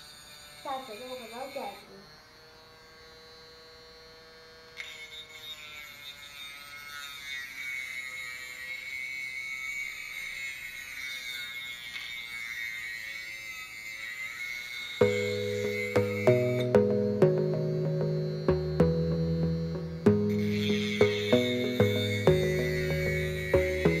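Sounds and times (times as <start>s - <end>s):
blade grinding on abrasive disc: 0.0s - 1.9s
small motor whining: 0.0s - 16.8s, 18.1s - 24.0s.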